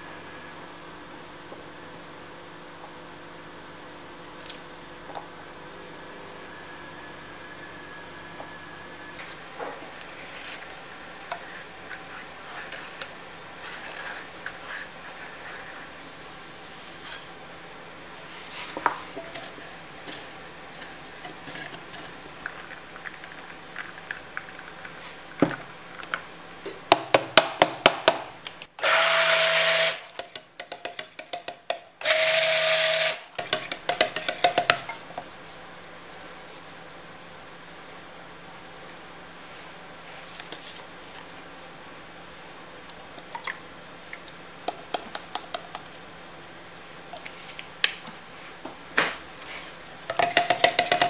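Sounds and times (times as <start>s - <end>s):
stick blender running: 28.8s - 30.1s, 32.0s - 33.6s.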